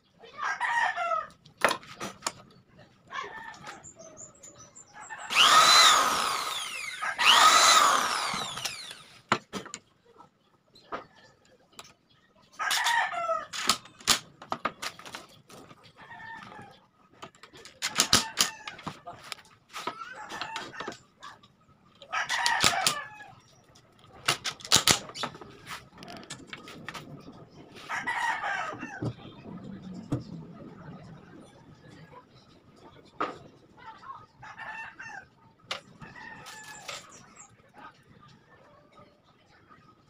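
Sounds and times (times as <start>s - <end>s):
electric drill whine drilling wood: 5.3s - 9.2s
sharp clicks and knocks: 17.2s - 19.5s, 23.8s - 27.2s
rooster crowing: 27.9s - 29.1s.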